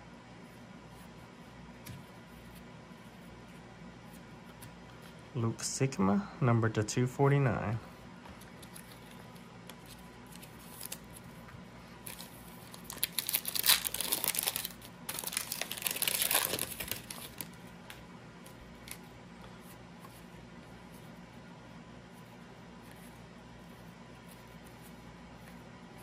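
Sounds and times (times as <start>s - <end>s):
foil wrapper crinkling and tearing: 10.3s - 11.1s, 12.0s - 17.5s.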